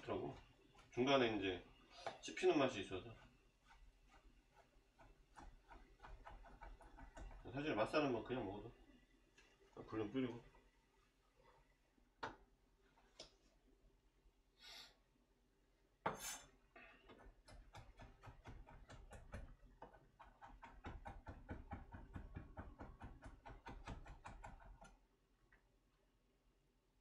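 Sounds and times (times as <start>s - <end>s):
knife chopping on cutting board: 3.1s - 7.6s, 17.2s - 24.9s.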